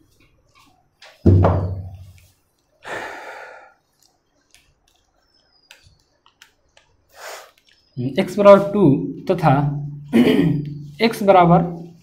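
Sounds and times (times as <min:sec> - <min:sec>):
low thud: 0:01.3 - 0:02.0
breath exhaled: 0:02.8 - 0:03.8, 0:07.1 - 0:07.6
markers clicking: 0:04.0 - 0:07.9.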